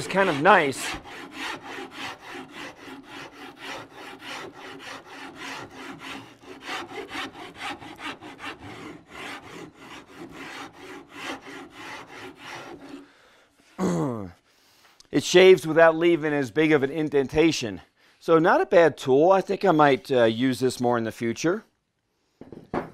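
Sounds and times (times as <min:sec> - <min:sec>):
rasp filing wood: 0:00.0 - 0:13.1.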